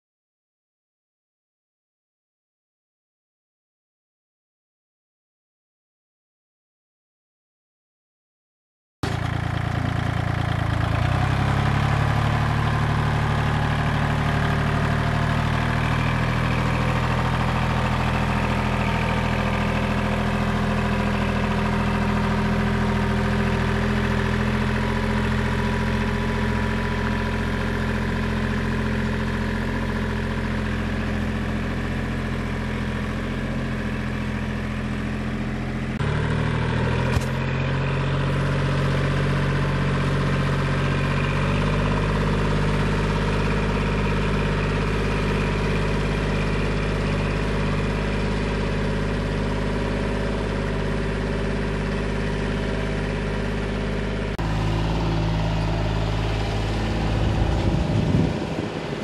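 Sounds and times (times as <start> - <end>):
tractor diesel engine running: 9.0 - 59.0
brief click: 37.1 - 37.4.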